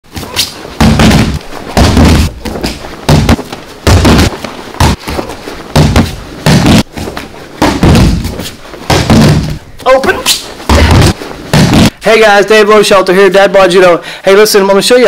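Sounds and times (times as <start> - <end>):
bodies thudding on mat: 0.1 - 12.0.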